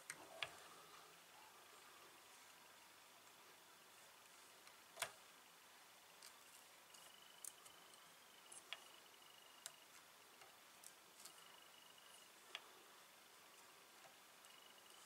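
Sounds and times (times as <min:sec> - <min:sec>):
faint tool clicks and ticks: 0:06.2 - 0:12.7.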